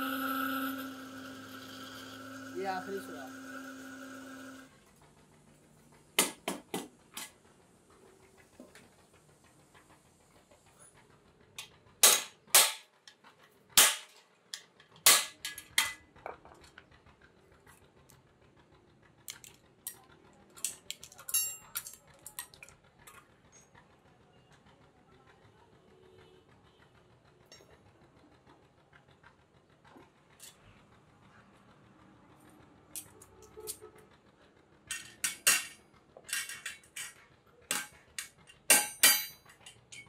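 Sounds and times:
hammer striking steel punch: 12.0s - 12.8s, 13.8s - 14.1s, 38.7s - 39.4s.

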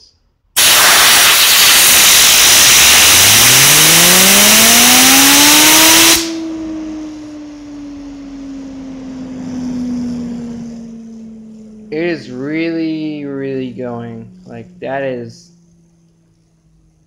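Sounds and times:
compressed air hissing: 0.6s - 3.9s.

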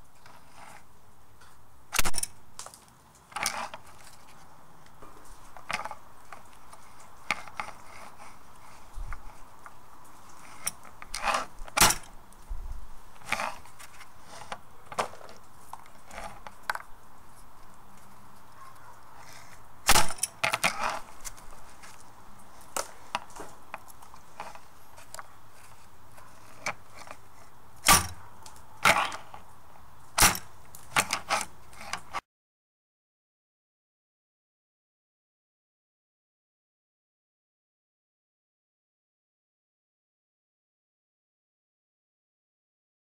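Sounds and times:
nut shells cracking on wood: 1.9s - 8.1s, 13.2s - 32.1s
rustling of shells being handled: 2.0s - 32.2s
metal striker snapping forward: 27.8s - 28.2s, 30.2s - 30.5s.

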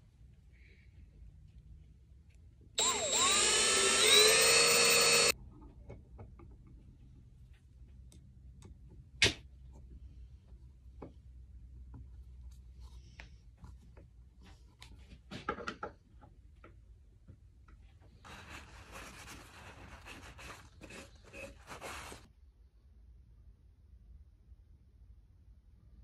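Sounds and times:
cloth rubbing on wood: 18.2s - 22.3s.

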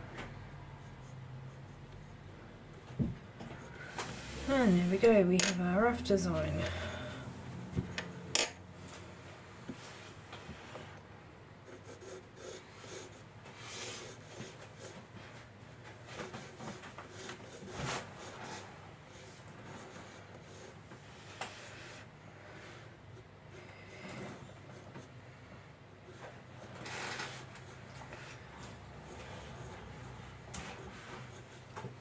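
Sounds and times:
pencil scratching on paper: 11.6s - 15.0s, 16.1s - 20.8s, 26.0s - 32.0s.

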